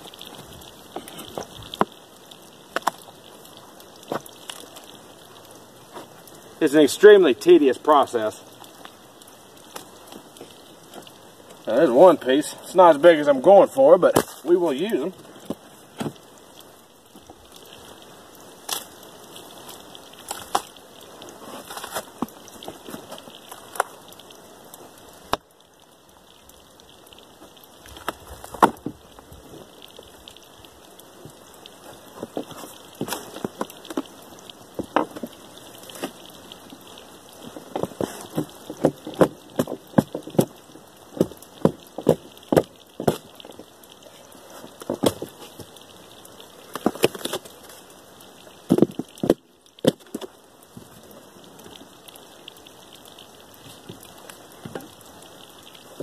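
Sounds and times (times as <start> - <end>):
bark cracking off log: 0.0 - 5.0, 14.0 - 14.6, 18.6 - 24.4, 27.8 - 30.4, 31.3 - 43.8.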